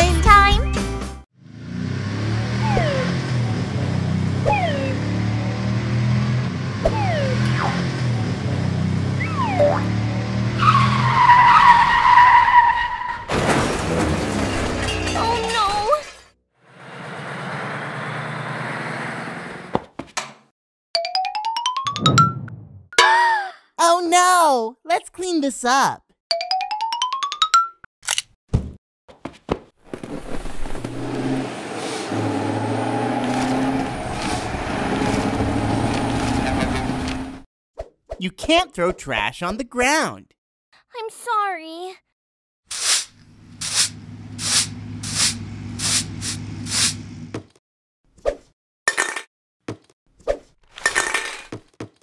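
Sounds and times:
crash into metal trash can: 13.3s - 15.4s
heavy vehicle engine humming: 31.2s - 37.4s, 43.1s - 47.4s.

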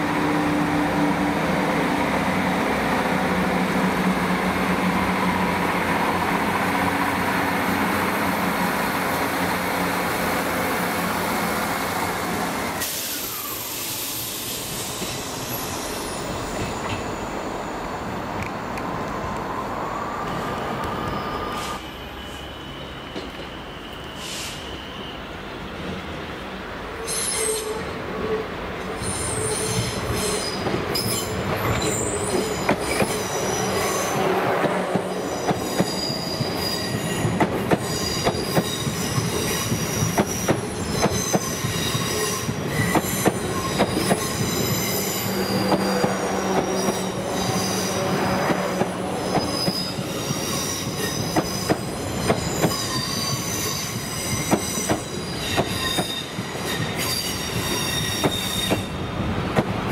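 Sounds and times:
passenger train rumbling past: 0.0s - 59.9s
high-pitched wheel squeal: 20.9s - 25.3s, 27.0s - 27.9s, 29.0s - 34.3s, 34.9s - 59.0s.

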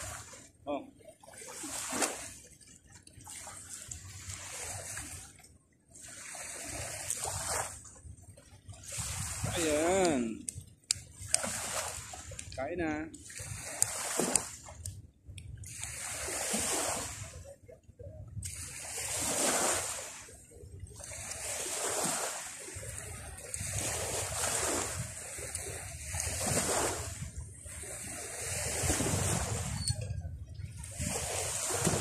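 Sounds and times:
sea waves washing onto beach: 0.0s - 5.4s, 8.8s - 15.0s, 15.6s - 17.4s, 18.4s - 29.8s, 30.8s - 32.0s.

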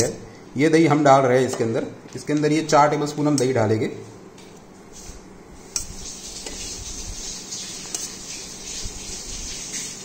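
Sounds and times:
spoon scraping wet curd: 5.6s - 9.9s.

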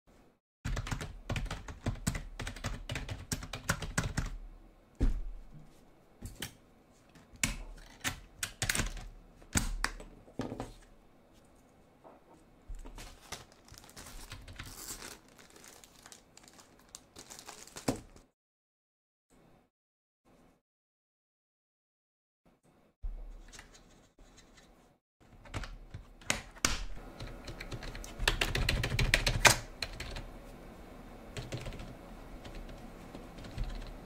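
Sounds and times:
keyboard typing: 0.7s - 4.4s, 7.3s - 9.9s, 27.2s - 30.3s, 31.4s - 34.0s
plastic bag crinkling: 12.8s - 18.3s.

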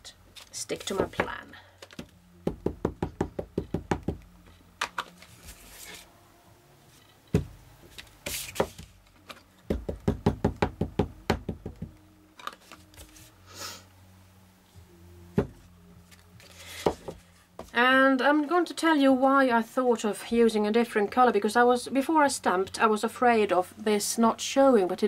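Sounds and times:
stamp knocking on ink pad: 2.4s - 4.2s, 9.7s - 11.9s.

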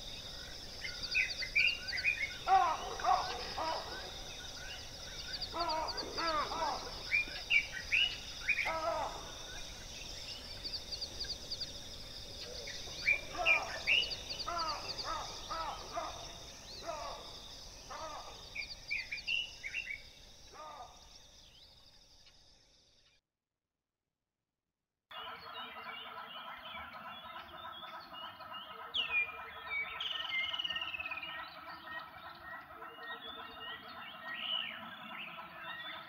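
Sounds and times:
birds calling: 0.0s - 21.7s, 25.1s - 36.0s
high-pitched background hiss: 0.0s - 22.9s.

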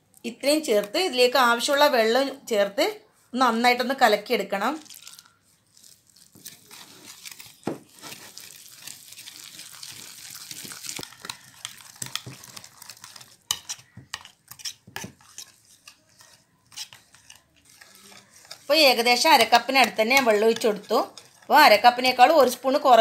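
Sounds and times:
whisk scraping glass bowl: 7.9s - 23.0s.

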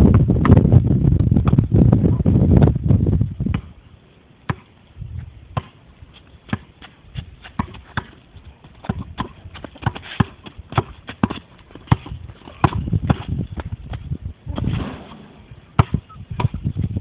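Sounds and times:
basketball bouncing on hard ground: 0.0s - 1.8s, 3.4s - 3.8s, 4.5s - 17.0s.

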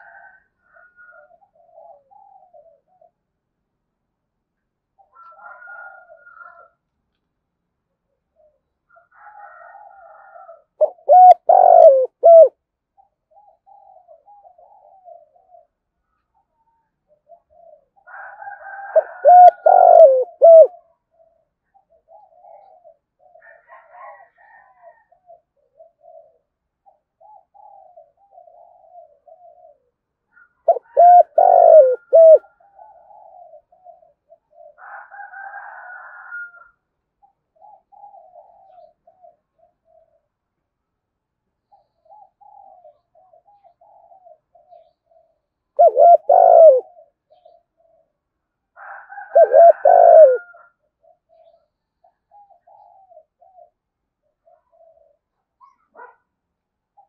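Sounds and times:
dove cooing: 0.0s - 3.3s, 5.0s - 6.8s, 8.3s - 40.4s, 41.6s - 48.2s, 48.8s - 56.2s.

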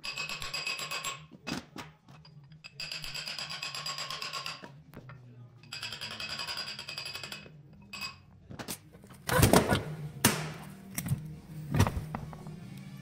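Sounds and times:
background music: 2.6s - 13.0s.

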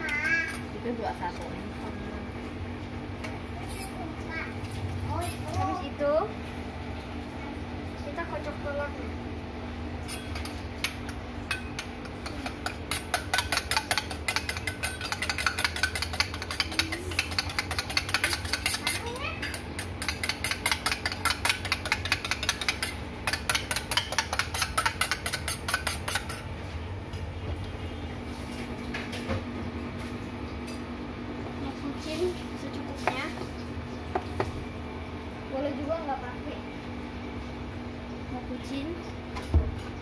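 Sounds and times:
spoon clinking in metal bowl: 10.0s - 26.4s.

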